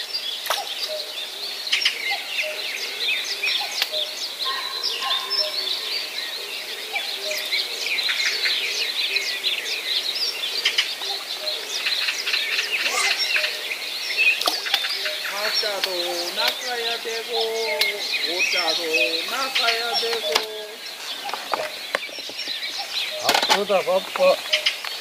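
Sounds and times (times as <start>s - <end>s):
many birds chirping: 0.0s - 25.0s.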